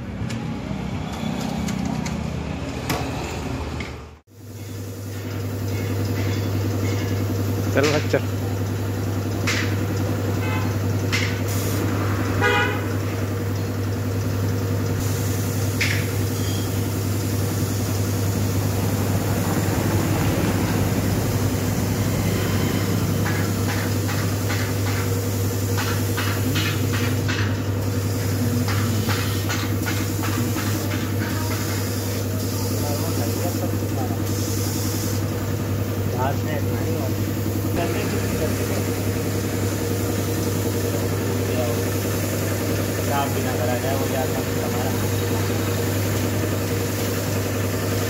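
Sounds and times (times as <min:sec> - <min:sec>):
air compressor hum: 0:00.0 - 0:48.0
paint spray gun hissing: 0:10.8 - 0:11.9, 0:12.9 - 0:20.0, 0:23.2 - 0:48.0.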